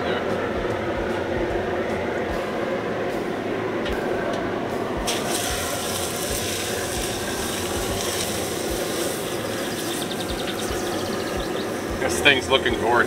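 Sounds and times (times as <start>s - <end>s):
meat sizzling on a grill: 5.1s - 13.0s.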